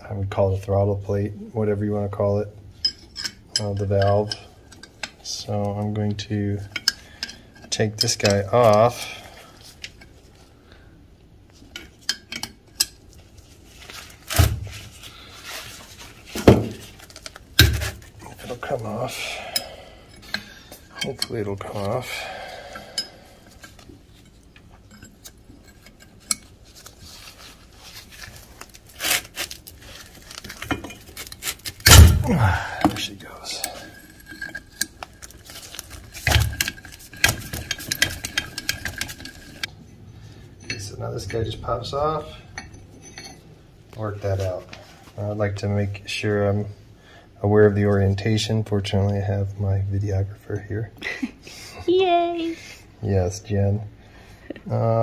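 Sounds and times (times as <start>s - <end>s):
metal clunk: 31.8s - 33.0s
wrenches clinking on metal: 33.0s - 39.7s.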